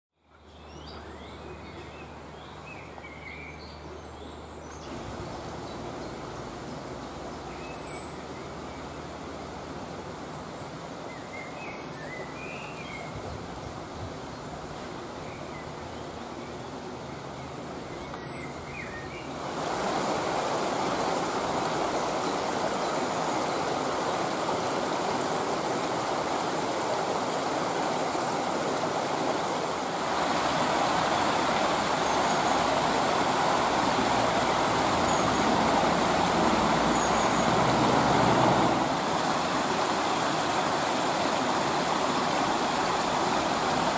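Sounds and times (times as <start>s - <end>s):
distant road traffic rumble: 3.8s - 10.6s, 13.4s - 43.9s
brook rushing over stones: 4.8s - 10.2s, 19.0s - 43.9s
high bird calls: 18.0s - 19.3s, 31.0s - 37.7s.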